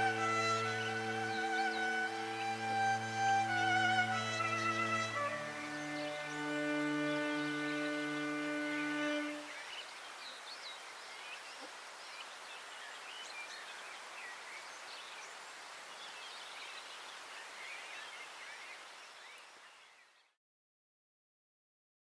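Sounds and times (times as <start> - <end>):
outdoor ambient hiss: 0.0 - 20.4
small birds chirping: 0.0 - 20.4.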